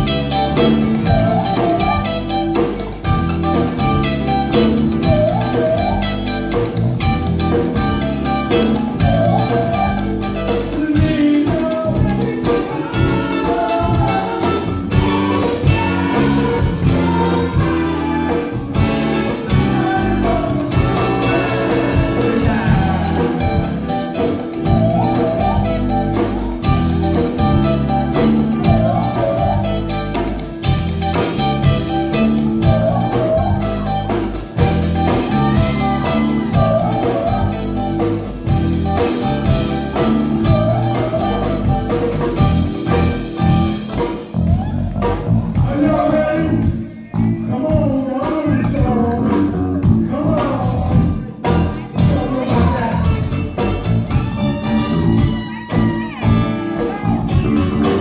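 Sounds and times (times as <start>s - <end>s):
live band playing: 0.0s - 58.0s
people singing: 0.5s - 2.2s, 4.6s - 6.6s, 8.5s - 30.4s, 32.1s - 34.3s, 35.0s - 43.3s, 45.6s - 53.3s.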